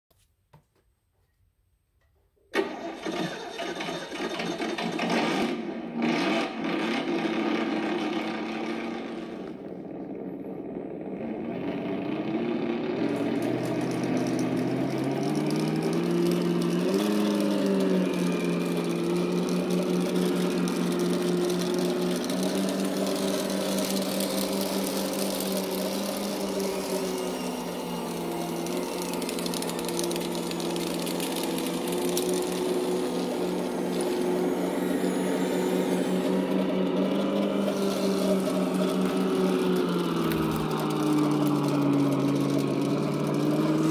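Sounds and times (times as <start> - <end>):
simulated diesel engine sound: 2.5 - 43.9.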